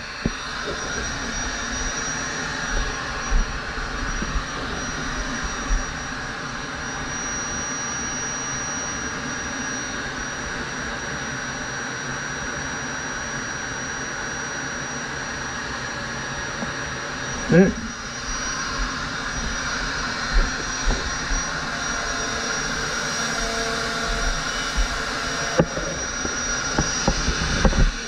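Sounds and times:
power tool motor whining: 0.0 - 8.2, 17.3 - 28.0.

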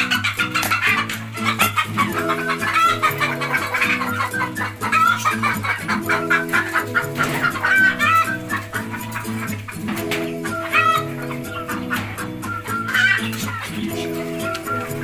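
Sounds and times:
background music: 0.0 - 15.0
hens clucking: 0.0 - 15.0.

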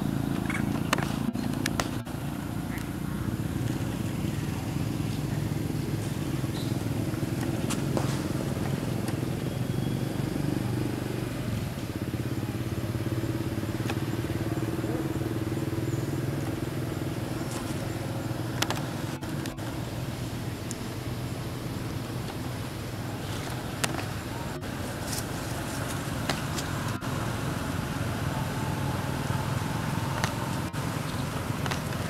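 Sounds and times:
motor humming: 11.3 - 32.0.

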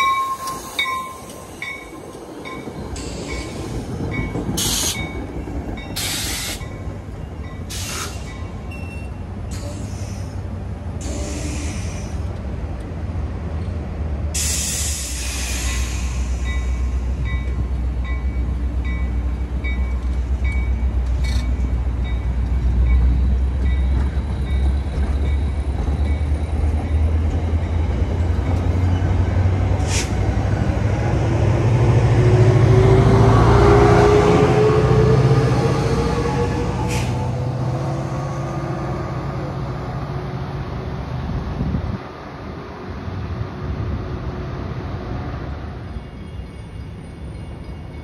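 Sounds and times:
diesel locomotive engine whine: 0.0 - 48.0
train coaches rumbling on rails: 0.0 - 48.0
air hiss: 6.0 - 6.7, 7.7 - 8.4, 11.0 - 12.3, 14.4 - 17.0, 29.8 - 30.2.

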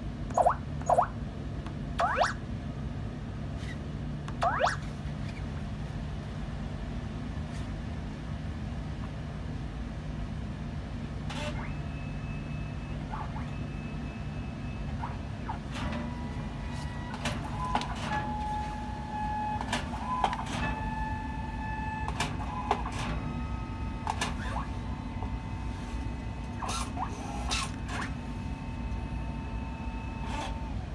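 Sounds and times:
steady low hum: 0.0 - 30.9
printer motor whining: 12.9 - 30.9.

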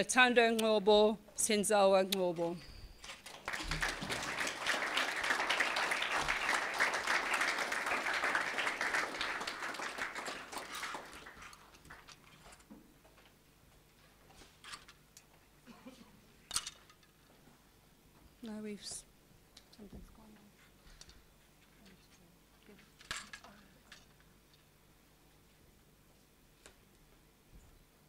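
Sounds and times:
audience applause: 3.2 - 12.2.

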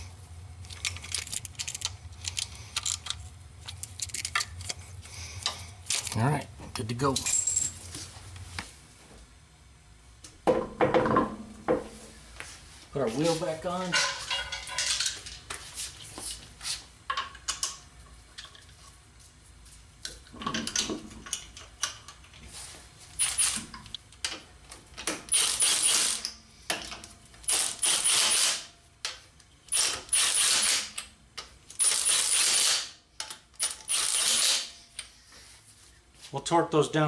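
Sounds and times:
impact wrench bursts: 23.2 - 23.7, 25.2 - 26.4, 27.4 - 28.7, 29.7 - 31.1, 31.7 - 33.0, 33.6 - 34.8.

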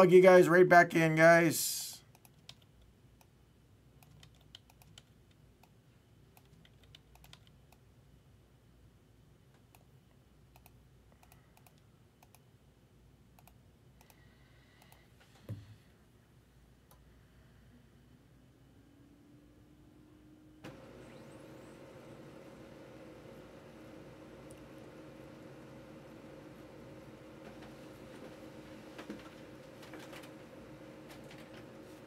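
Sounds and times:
keyboard and mouse clicks: 2.1 - 3.3, 4.0 - 7.8, 10.5 - 12.5, 13.4 - 14.2.

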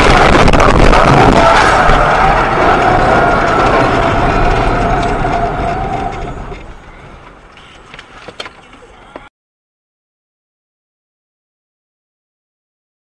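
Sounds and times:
loud car noise: 0.0 - 7.9.

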